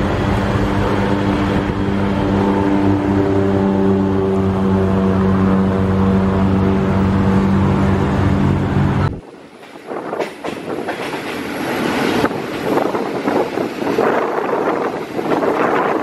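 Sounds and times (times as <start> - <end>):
train engine hum: 0.0 - 16.0
train wheels clattering on rails: 9.2 - 16.0.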